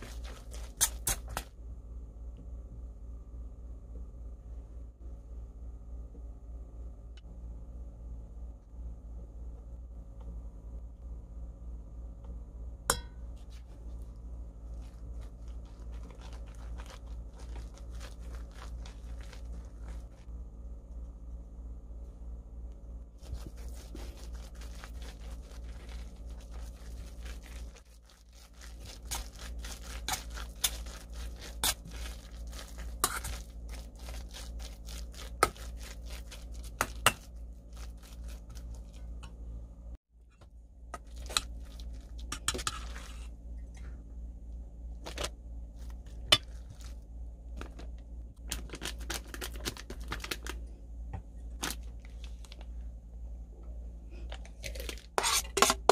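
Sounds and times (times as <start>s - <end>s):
plastic bag crinkling: 0.0s - 1.4s, 14.6s - 20.3s, 23.2s - 39.0s, 47.6s - 50.6s
steady low hum: 0.0s - 55.9s
spoon scraping steel bowl: 30.0s - 33.5s, 55.2s - 55.9s.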